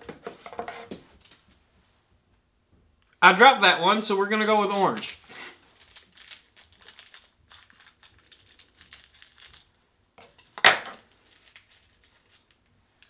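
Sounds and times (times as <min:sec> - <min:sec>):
plastic wrapper crinkling: 0:04.2 - 0:12.7.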